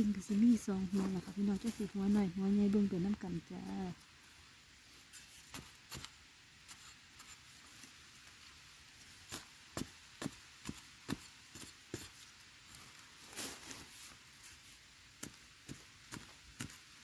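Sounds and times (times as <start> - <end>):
spade scraping into dry soil: 5.0 - 7.7
soil being flung: 12.8 - 16.8.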